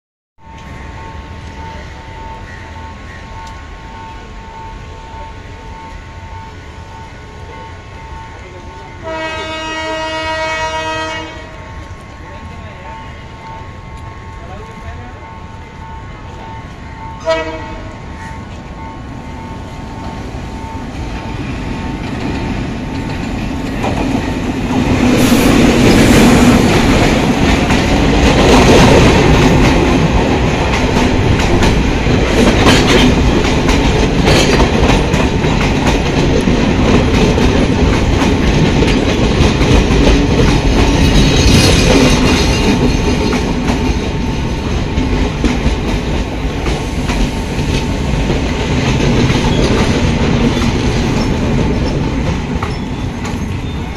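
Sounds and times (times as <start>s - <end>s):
diesel locomotive passing: 0.4s - 53.9s
train coaches rumbling: 0.4s - 53.9s
clickety-clack of train wheels: 16.3s - 53.9s.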